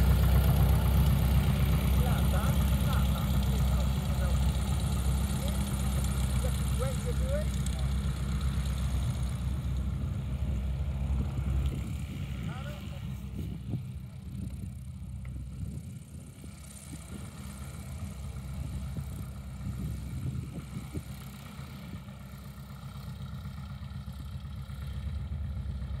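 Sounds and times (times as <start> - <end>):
light aircraft engine drone: 0.0 - 26.0.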